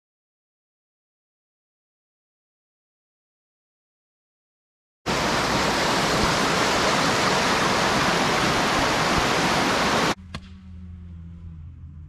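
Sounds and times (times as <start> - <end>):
river rapids rushing over rocks: 5.1 - 10.2.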